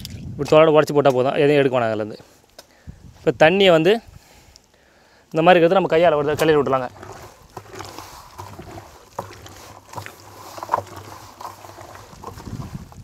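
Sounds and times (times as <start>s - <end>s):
hands squelching in wet mash: 5.7s - 13.0s
splashes: 6.1s - 13.0s.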